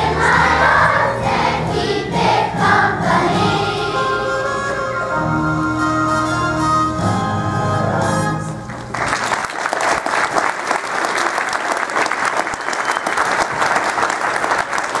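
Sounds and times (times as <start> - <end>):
audience applause: 8.7 - 15.0.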